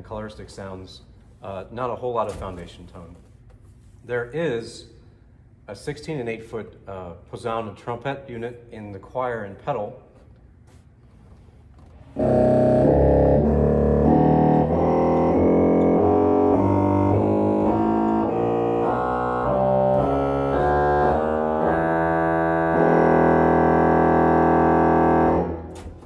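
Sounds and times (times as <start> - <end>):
pipe organ playing chords: 12.1 - 26.0.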